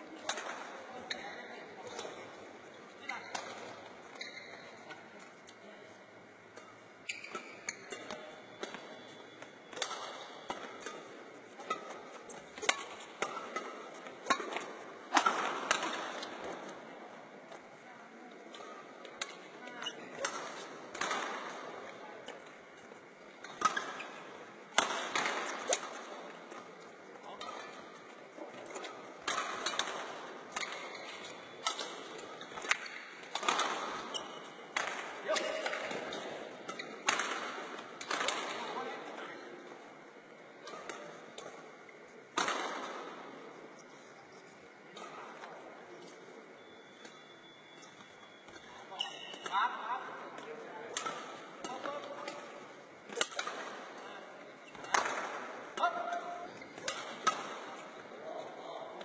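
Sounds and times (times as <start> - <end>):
racket hitting shuttlecock: 0.2 - 0.7, 3.2 - 3.9, 6.6 - 16.8, 18.5 - 22.4, 23.4 - 38.8, 40.6 - 43.3, 50.4 - 52.5, 53.1 - 58.2.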